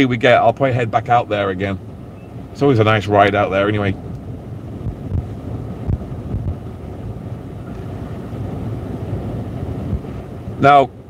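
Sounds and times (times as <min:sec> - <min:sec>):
wind gusts: 0:00.0 - 0:11.0
waves crashing over seawall: 0:00.1 - 0:11.0
low thumps: 0:03.9 - 0:10.5.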